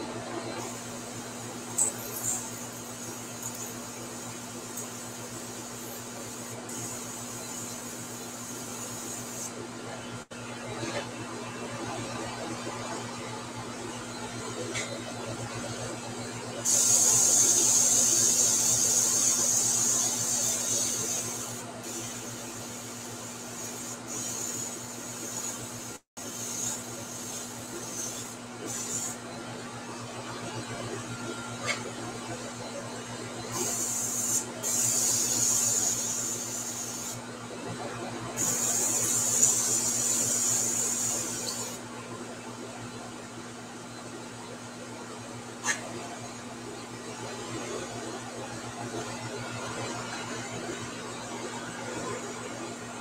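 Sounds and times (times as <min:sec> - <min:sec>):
airbrush hissing: 0:16.7 - 0:22.2, 0:33.6 - 0:37.2.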